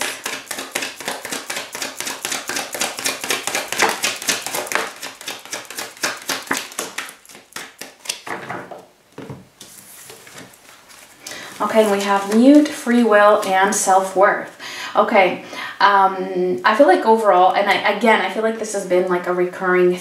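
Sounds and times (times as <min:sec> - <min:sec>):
cards being shuffled: 0:00.0 - 0:08.4, 0:09.6 - 0:13.7.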